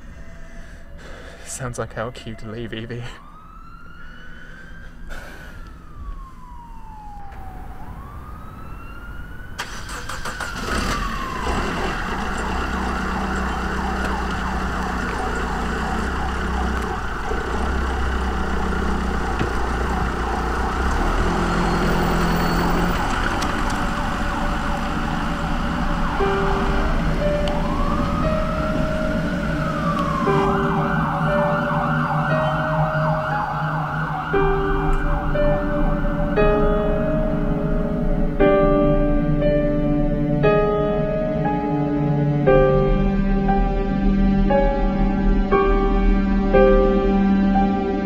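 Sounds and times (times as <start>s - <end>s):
emergency siren wailing: 0.0s - 47.9s
road noise: 0.0s - 48.0s
car engine rumble: 9.6s - 46.8s.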